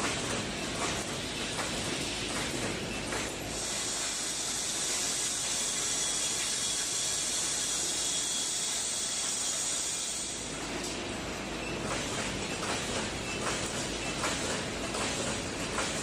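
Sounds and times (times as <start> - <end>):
welding machine hiss: 3.2 - 10.6.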